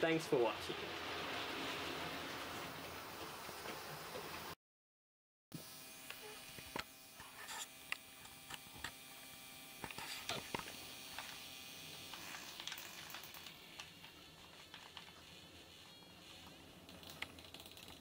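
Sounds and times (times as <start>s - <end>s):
faint clicks and ticks: 16.4s - 18.0s.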